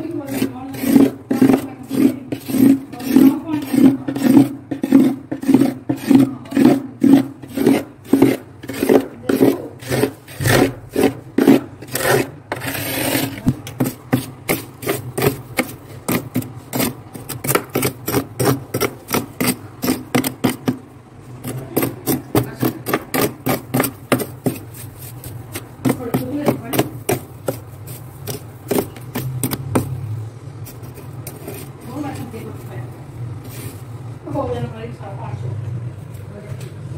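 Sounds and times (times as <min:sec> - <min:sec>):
spoon scraping frost: 0:00.0 - 0:30.0, 0:30.6 - 0:32.8.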